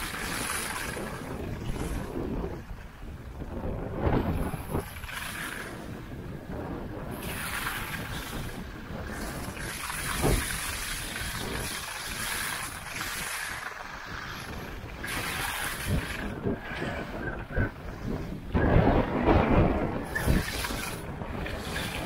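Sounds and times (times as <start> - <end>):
skis scraping on snow: 0.0 - 2.5, 4.3 - 6.0, 7.2 - 17.1, 20.0 - 22.0
wind buffeting microphone: 0.0 - 22.0.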